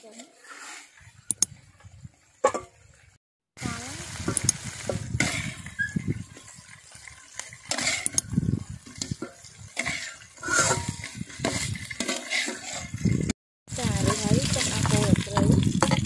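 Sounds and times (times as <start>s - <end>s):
metal spatula scraping a wok: 0.0s - 1.1s, 5.2s - 16.0s
hot oil sizzling: 0.4s - 16.0s.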